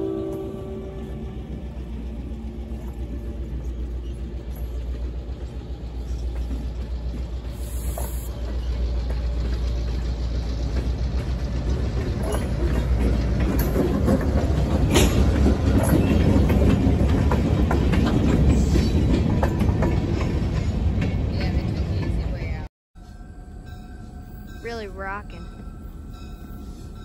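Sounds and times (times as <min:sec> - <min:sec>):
diesel locomotive rumble: 0:00.0 - 0:27.0
train wheels clicking over rail joints: 0:01.3 - 0:22.6.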